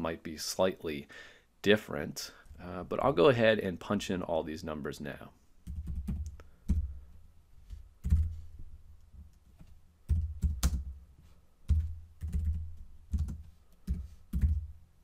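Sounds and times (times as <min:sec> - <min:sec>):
keyboard typing: 0:05.6 - 0:06.9, 0:08.0 - 0:08.4, 0:09.6 - 0:11.0, 0:11.7 - 0:14.7.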